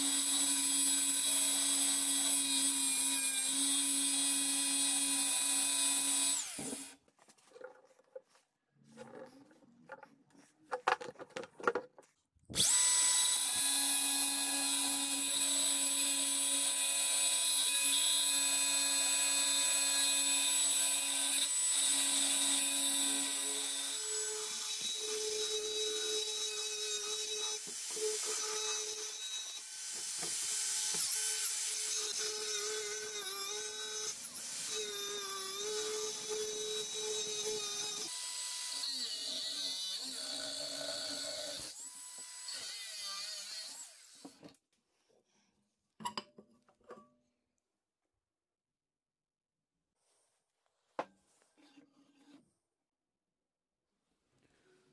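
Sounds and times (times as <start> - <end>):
angle grinder grinding metal: 20.6 - 44.4.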